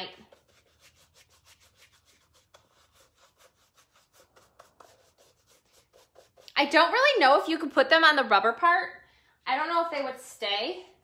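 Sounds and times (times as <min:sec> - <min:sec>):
paintbrush scrubbing: 0:00.0 - 0:07.1.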